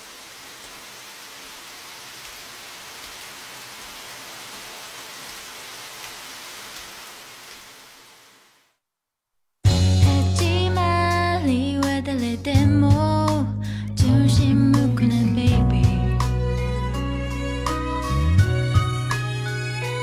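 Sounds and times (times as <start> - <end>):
steady rain falling: 0.0 - 8.8.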